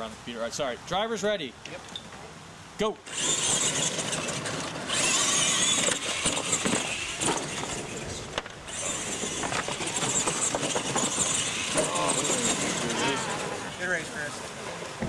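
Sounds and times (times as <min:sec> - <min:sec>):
rc truck motors whining: 0:03.1 - 0:14.4.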